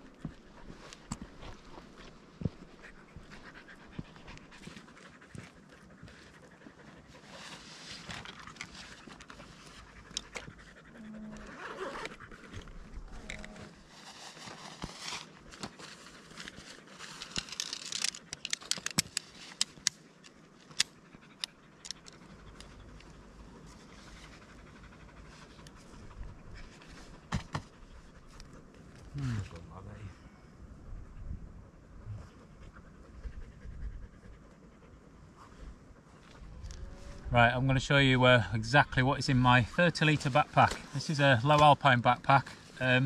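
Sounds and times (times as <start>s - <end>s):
dog panting: 0.0s - 13.2s, 20.1s - 29.1s, 30.9s - 37.0s
tent poles snapping together: 17.3s - 20.0s.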